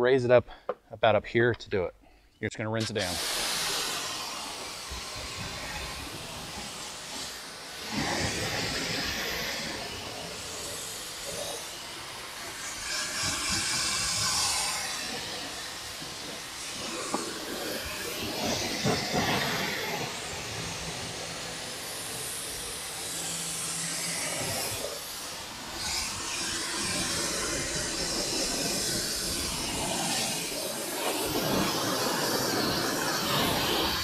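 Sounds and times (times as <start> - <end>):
pressure washer spraying: 2.8 - 34.0.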